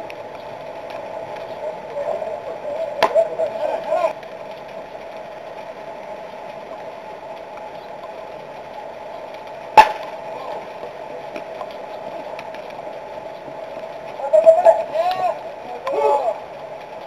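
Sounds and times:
steady background hum: 0.0s - 17.0s
baseball bat cracking ball: 9.8s - 10.1s.

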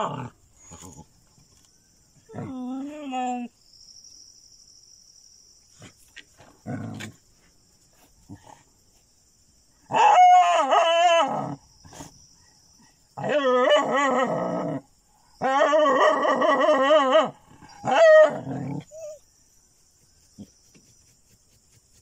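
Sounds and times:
animal wavering cries: 15.4s - 19.2s.

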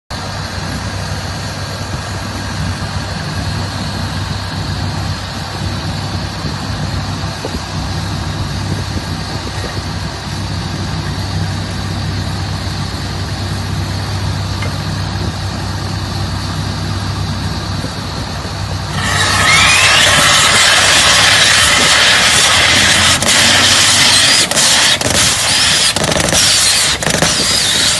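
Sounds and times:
engines idling hum: 0.1s - 27.9s
rush of compressed air: 18.8s - 27.9s.

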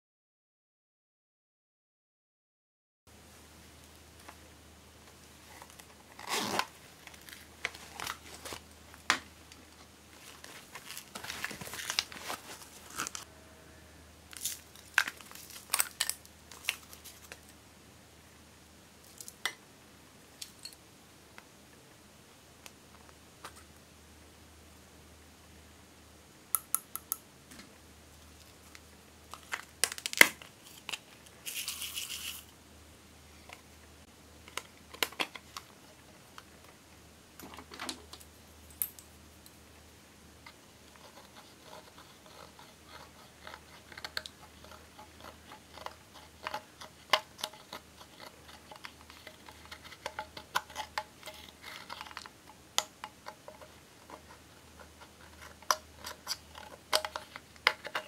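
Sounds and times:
sharp clicks of vials: 26.6s - 27.2s.

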